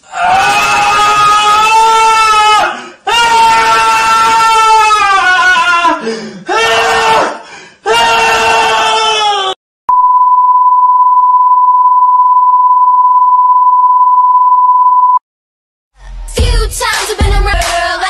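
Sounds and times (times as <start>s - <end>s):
steady electronic beep: 9.9s - 15.2s.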